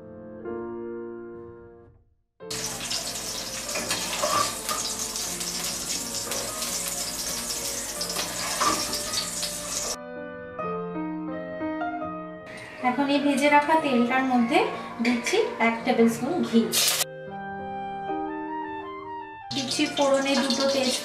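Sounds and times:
soft background music: 0:00.0 - 0:21.0
hot oil sizzling in a wok: 0:02.4 - 0:10.0, 0:16.7 - 0:17.0, 0:19.5 - 0:21.0.

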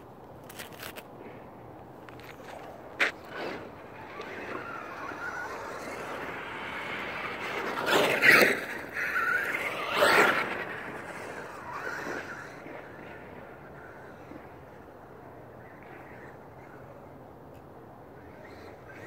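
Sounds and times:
tyre noise on dirt: 0:00.0 - 0:12.4
rc truck motor whine: 0:03.3 - 0:17.1.

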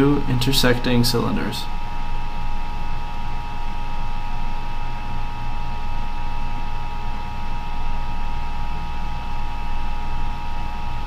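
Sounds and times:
electrical hum and hiss: 0:00.0 - 0:11.0.

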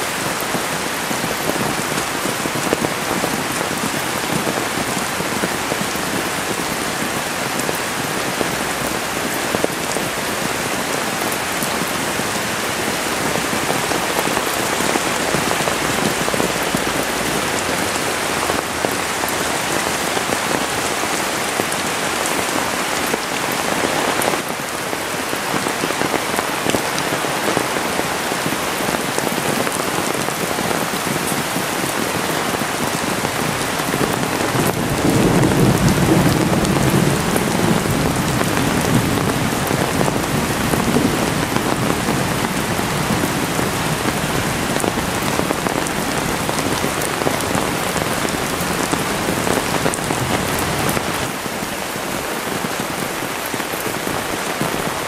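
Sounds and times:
rain drumming on an umbrella: 0:00.0 - 0:55.0.

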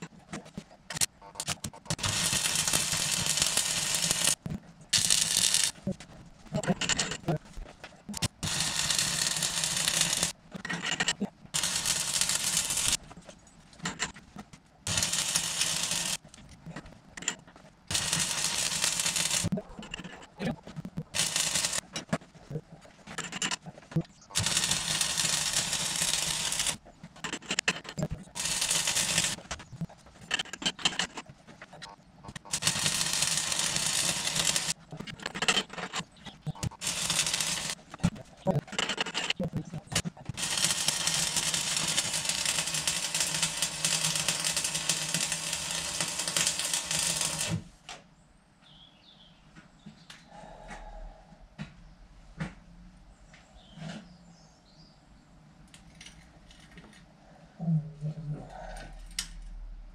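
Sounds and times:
arc welding crackling and hissing: 0:00.9 - 0:05.9, 0:08.1 - 0:10.4, 0:11.5 - 0:13.0, 0:14.8 - 0:16.4, 0:17.9 - 0:19.6, 0:20.5 - 0:21.9, 0:24.0 - 0:26.8, 0:27.9 - 0:30.7, 0:31.7 - 0:34.9, 0:36.0 - 0:47.8.

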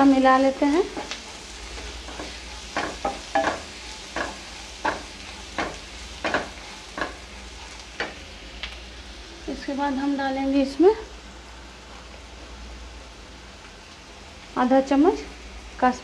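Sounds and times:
soft sizzle: 0:00.0 - 0:16.0
spatula scraping frying pan: 0:00.8 - 0:08.2.

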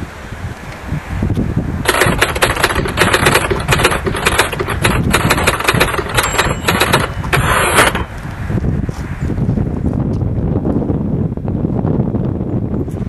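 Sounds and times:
low wind rumble: 0:00.0 - 0:13.0
typewriter keys clacking: 0:01.9 - 0:08.1.

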